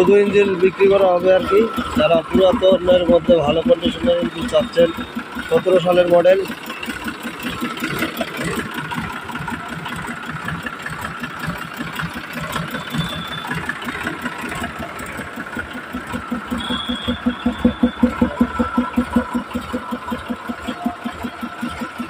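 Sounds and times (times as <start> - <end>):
tractor diesel engine idling: 0.0 - 22.0.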